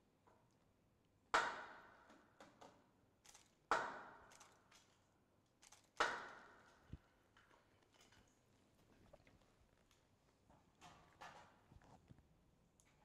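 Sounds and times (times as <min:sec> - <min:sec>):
small clicks: 0:04.3 - 0:06.1.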